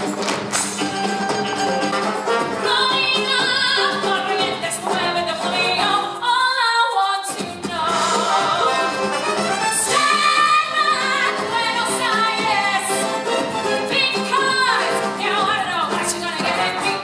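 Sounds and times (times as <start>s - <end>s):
instrumental accompaniment: 0.0s - 17.0s
woman singing: 2.6s - 8.9s, 9.8s - 13.1s, 13.9s - 17.0s.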